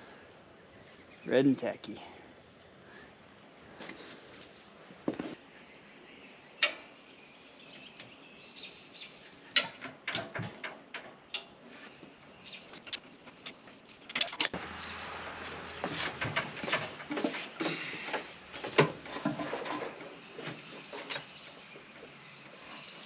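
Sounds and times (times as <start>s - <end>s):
tools clicking and knocking: 9.6s - 11.5s, 12.8s - 14.6s.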